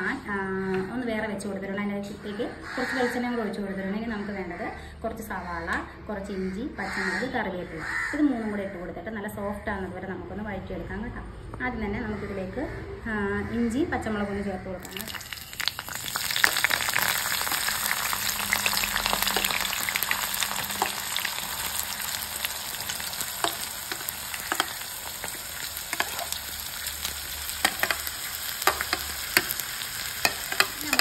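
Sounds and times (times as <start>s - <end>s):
food sizzling in oil: 14.8s - 31.0s
spatula scraping a pan: 19.0s - 31.0s.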